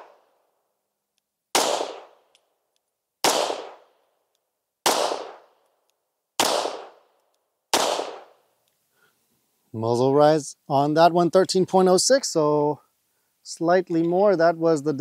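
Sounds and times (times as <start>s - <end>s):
pistol shots: 1.5s - 2.4s, 3.2s - 4.0s, 4.8s - 5.6s, 6.4s - 8.4s.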